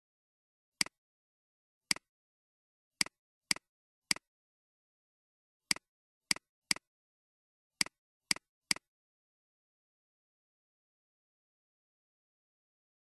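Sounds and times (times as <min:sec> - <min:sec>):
computer mouse clicking: 0:03.0 - 0:04.3, 0:05.7 - 0:06.9, 0:07.8 - 0:08.9.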